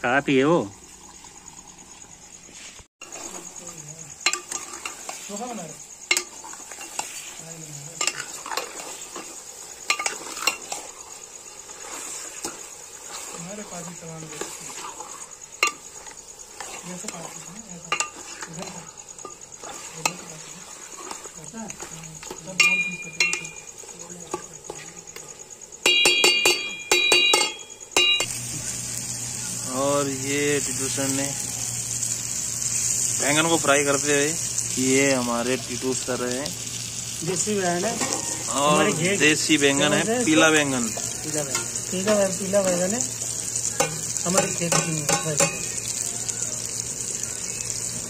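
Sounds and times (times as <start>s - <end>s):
meat sizzling in oil: 0.1s - 48.0s
ladle scraping pot: 8.0s - 11.0s, 14.3s - 23.7s
ladle clanking against metal pot: 22.6s - 23.6s, 25.8s - 28.2s.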